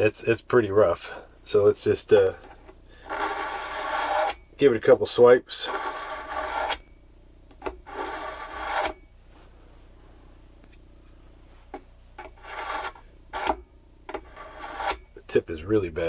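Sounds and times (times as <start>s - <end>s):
knife scraping through sharpener: 3.1s - 4.4s, 5.7s - 6.8s, 7.8s - 9.0s, 12.2s - 15.2s.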